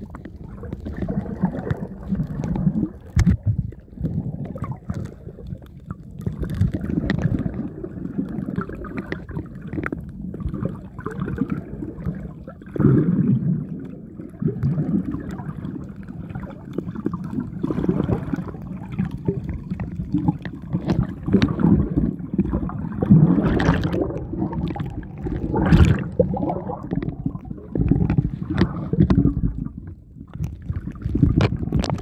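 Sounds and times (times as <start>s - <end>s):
splashes and knocks: 0.0s - 5.2s, 17.6s - 32.0s
low underwater rumble: 0.0s - 32.0s
muffled underwater water sloshing: 0.0s - 32.0s.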